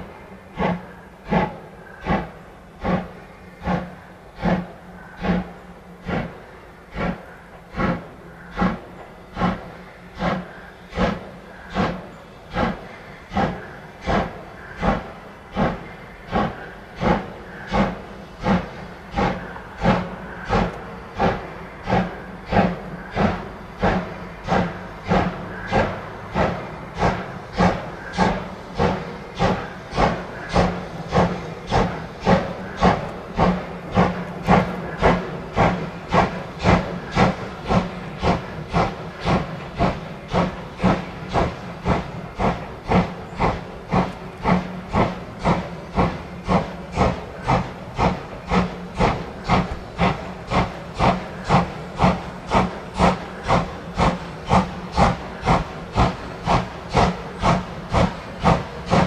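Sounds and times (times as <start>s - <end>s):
steam locomotive exhaust beats: 0.0s - 59.0s.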